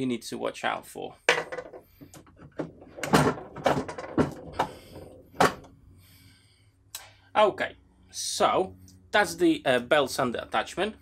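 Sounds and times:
knocks and scrapes of machine parts: 0:01.3 - 0:05.8.

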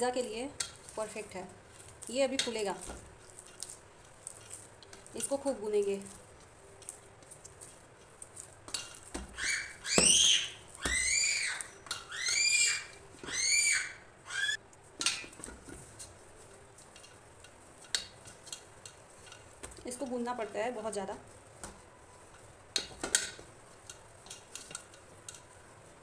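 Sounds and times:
high-pitched squeaky calls: 0:09.3 - 0:14.6.

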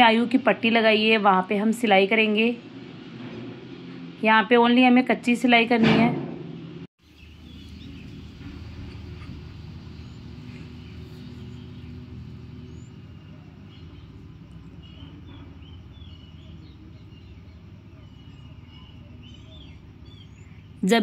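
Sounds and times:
birds chirping: 0:07.0 - 0:21.0.

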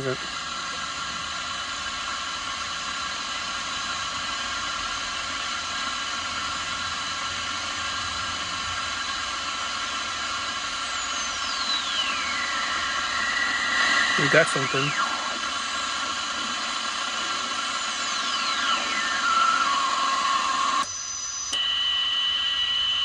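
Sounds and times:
radio receiver hiss and static: 0:00.0 - 0:23.0
steady whining tones: 0:00.0 - 0:23.0
heterodyne whistle sliding down: 0:09.6 - 0:23.0.

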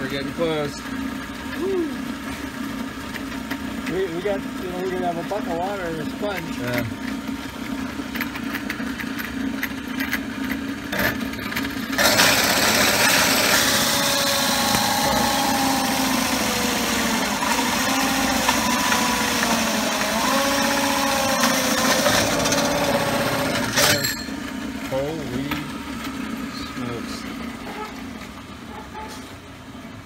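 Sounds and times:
drill press humming: 0:00.0 - 0:28.8
hole saw grinding through metal: 0:10.9 - 0:25.2.

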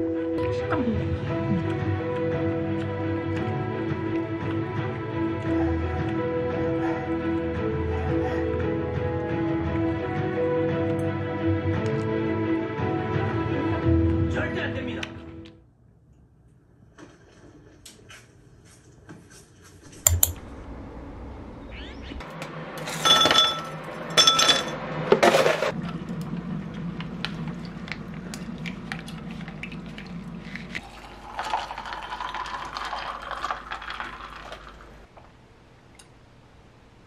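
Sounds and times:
glass clinking: 0:23.0 - 0:24.8
liquid pouring over ice: 0:28.7 - 0:35.1
ice cubes clattering into glass: 0:30.8 - 0:34.8.

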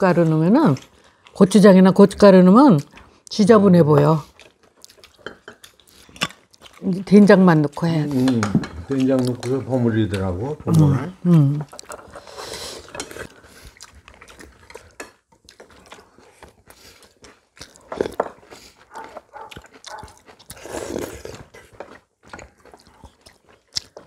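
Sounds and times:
people chewing and slurping: 0:00.0 - 0:24.0
utensils clicking on bowls: 0:08.2 - 0:10.3.

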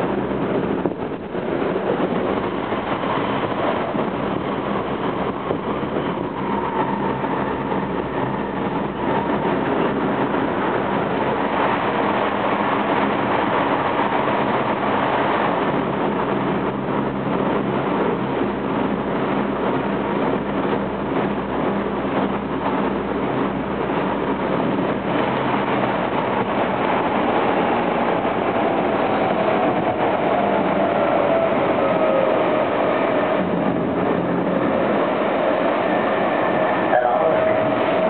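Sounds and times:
train wheels rumbling on rail: 0:00.0 - 0:38.0.

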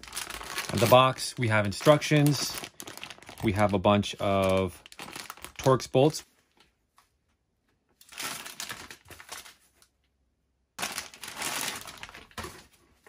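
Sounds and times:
plastic bags crinkling: 0:00.0 - 0:06.2, 0:08.0 - 0:09.9, 0:10.8 - 0:12.8.

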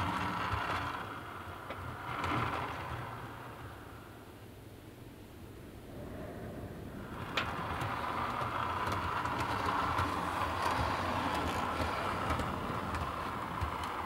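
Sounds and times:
model train motor whirring: 0:00.0 - 0:04.1, 0:07.0 - 0:14.0.

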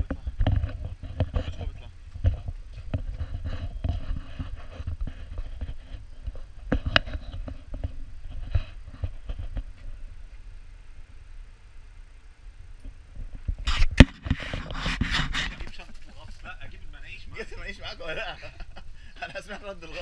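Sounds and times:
footsteps on paving stones: 0:00.0 - 0:10.5
wind rumble on microphone: 0:00.0 - 0:11.2, 0:12.5 - 0:15.9.

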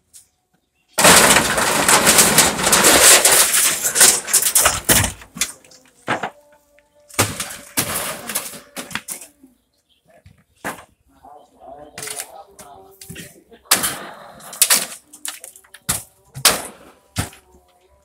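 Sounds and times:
wooden booth crashing apart: 0:01.0 - 0:06.4, 0:07.1 - 0:09.2, 0:13.7 - 0:17.4.

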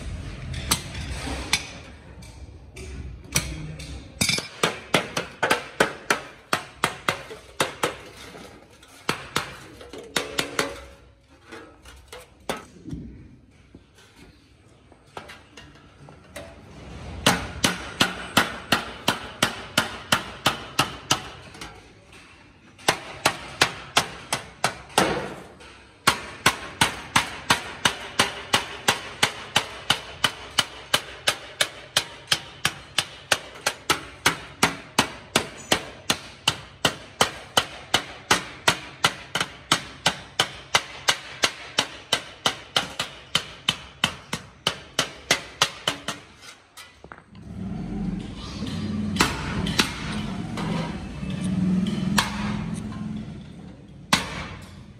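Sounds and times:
mallet striking metal sheet: 0:49.0 - 0:53.0.

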